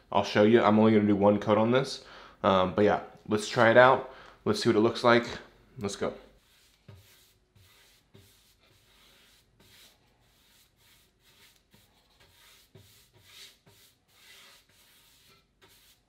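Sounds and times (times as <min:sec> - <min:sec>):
paint brush swishing: 0:06.4 - 0:16.0.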